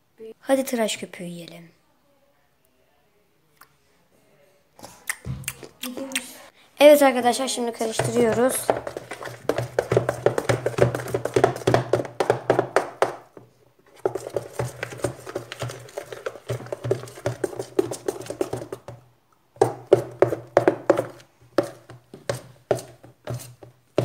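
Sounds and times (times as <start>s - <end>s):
spoon scraping in a bowl: 14.0s - 18.8s, 20.9s - 24.0s.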